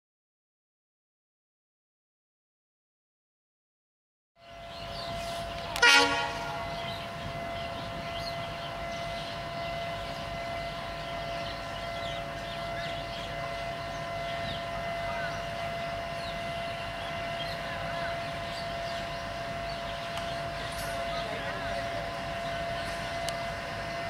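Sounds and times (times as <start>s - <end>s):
diesel locomotive engine running: 4.4s - 24.0s
locomotive horn toot: 5.2s - 18.2s.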